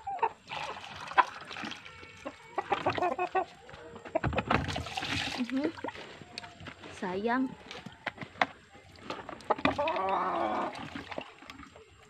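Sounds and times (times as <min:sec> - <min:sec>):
hens clucking: 0:00.0 - 0:04.6, 0:07.5 - 0:12.0.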